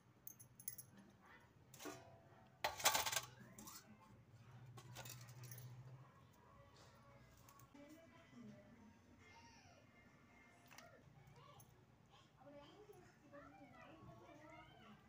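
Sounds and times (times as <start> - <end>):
metal kitchenware clinking: 1.7 - 4.0, 4.7 - 5.8
metal kitchenware clattering: 1.8 - 4.0, 4.7 - 5.8.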